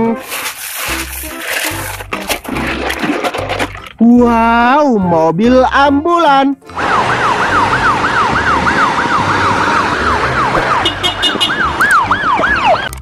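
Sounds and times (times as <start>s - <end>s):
street noise: 6.5s - 13.0s
ambulance siren wailing: 6.6s - 13.0s.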